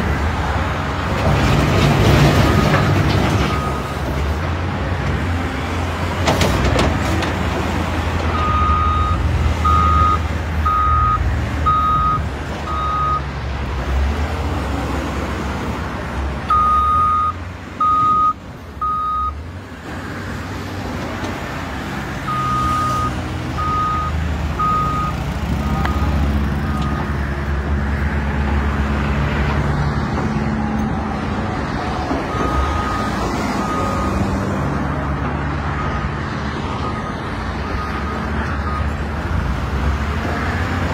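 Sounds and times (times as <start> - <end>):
back-up alarm beeping: 8.4 - 13.2, 16.5 - 19.4, 22.3 - 27.1.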